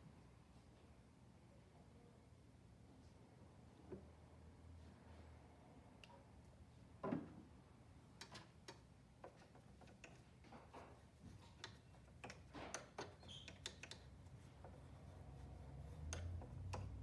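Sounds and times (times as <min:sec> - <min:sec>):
brush scratching in sewing machine: 0:09.2 - 0:17.0.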